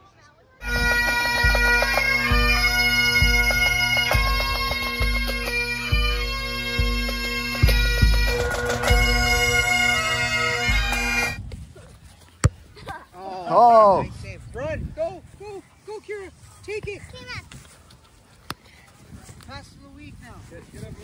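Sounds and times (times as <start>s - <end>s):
bagpipes playing: 0.6s - 11.5s
bass drum beating: 0.7s - 11.6s.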